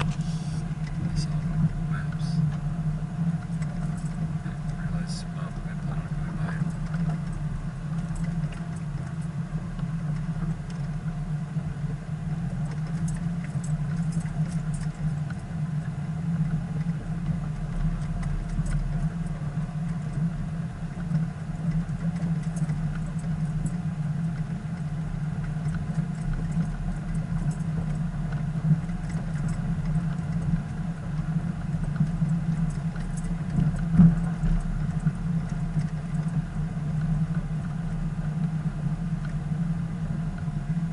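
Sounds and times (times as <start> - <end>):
faint clicks and rattles: 0.0 - 11.3, 12.3 - 39.7
vehicle engine and road drone: 0.0 - 40.9.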